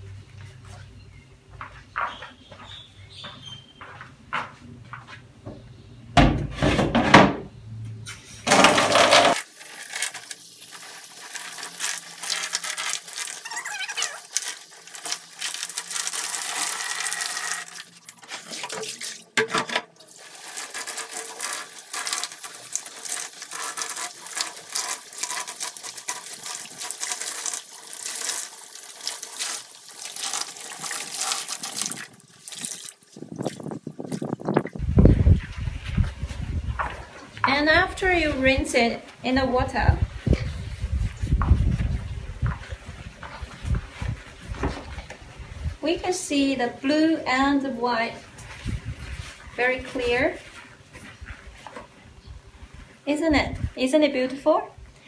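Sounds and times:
water splashing and sloshing: 8.6 - 38.5, 48.2 - 53.0.

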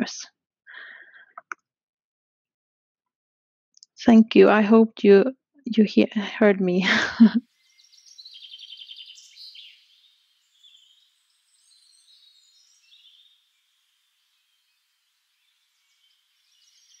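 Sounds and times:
songbird chirps and trills: 7.2 - 17.0.

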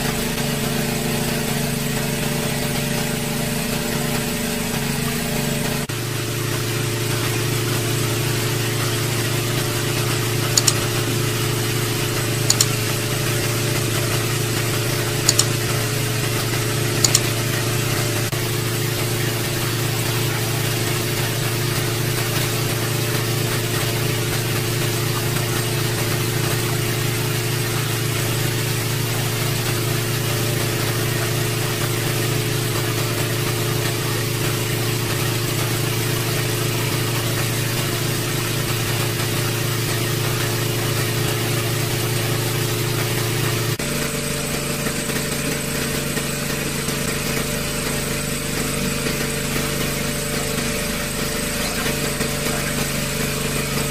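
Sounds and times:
water pump engine running: 0.0 - 53.9
short high double ticks: 12.5 - 12.8, 15.3 - 15.6, 17.0 - 17.4.

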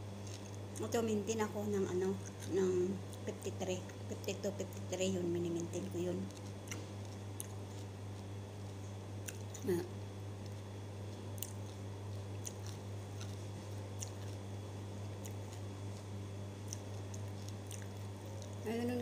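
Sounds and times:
person chewing crisp food: 0.1 - 0.8, 6.2 - 9.6, 10.2 - 18.6.

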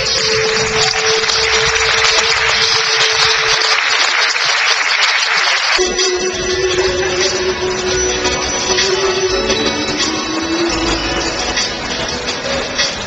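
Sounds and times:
background music: 0.0 - 4.3, 5.8 - 13.0
audience applauding: 0.0 - 5.8.

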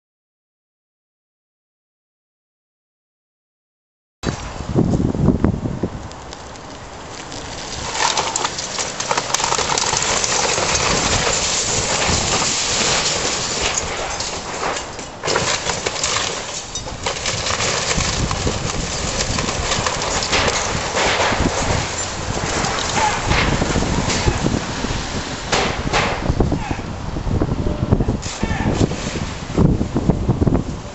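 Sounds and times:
timber cracking and splintering: 6.0 - 26.4
debris crashing down: 6.0 - 26.7, 28.2 - 30.5.

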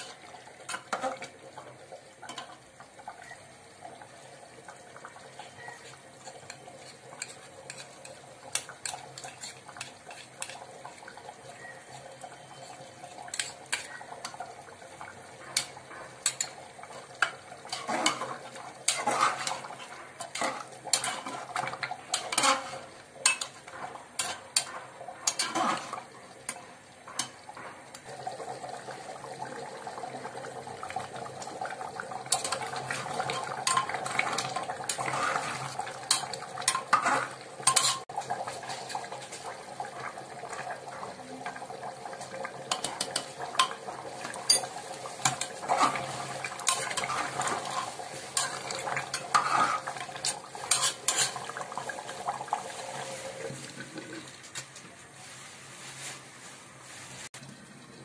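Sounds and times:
curry bubbling: 0.0 - 55.4
metal spoon scraping pot: 5.4 - 11.0, 11.9 - 14.0, 15.5 - 27.4, 32.3 - 39.0, 42.7 - 51.6.

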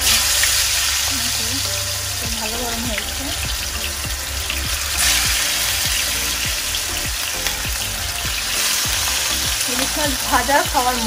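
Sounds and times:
fish sizzling in hot oil: 0.0 - 11.0.

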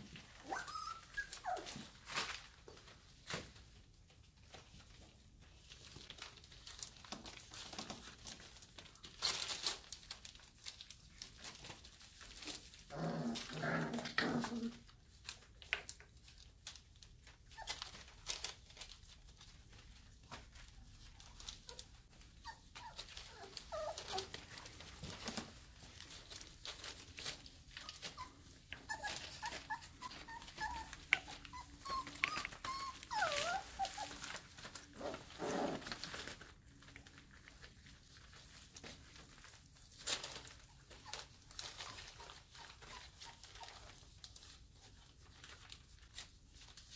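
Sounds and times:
puppies whimpering and yipping: 0.1 - 2.0, 21.3 - 35.8, 40.0 - 44.5
paws scuffing and scratching: 15.2 - 46.9.

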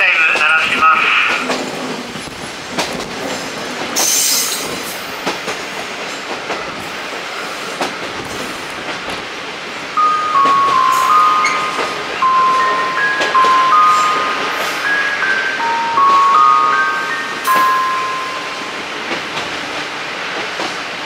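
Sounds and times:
train wheel and rail noise: 0.0 - 21.0
rail-joint clicks: 1.2 - 9.3, 10.0 - 21.0
chime melody: 10.0 - 19.2.

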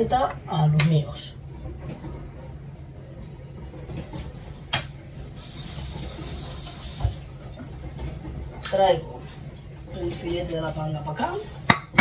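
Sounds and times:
dishwasher humming: 0.0 - 12.0
dishwasher hiss: 4.1 - 7.6.

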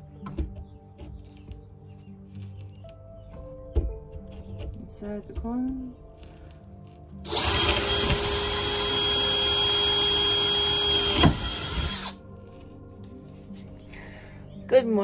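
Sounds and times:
power drill boring through board: 7.2 - 12.2.

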